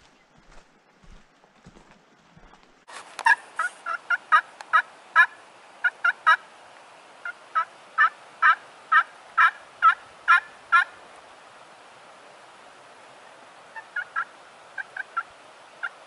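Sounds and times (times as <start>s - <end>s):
turkey call hen yelps: 7.2s - 11.0s, 13.7s - 16.0s.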